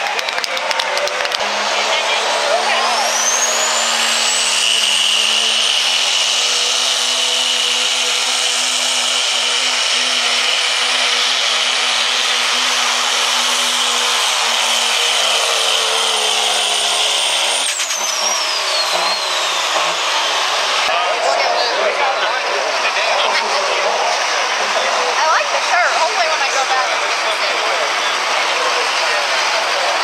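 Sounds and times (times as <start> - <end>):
diesel engine at full throttle: 0.0 - 30.0
high turbo whistle: 1.4 - 7.1, 14.2 - 20.9.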